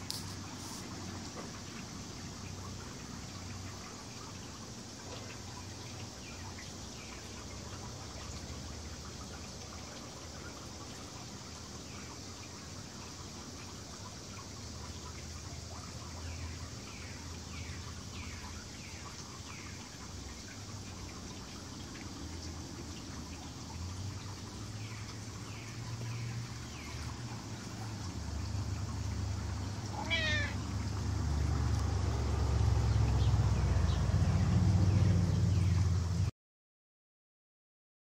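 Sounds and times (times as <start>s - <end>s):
cat meow: 29.9s - 30.6s.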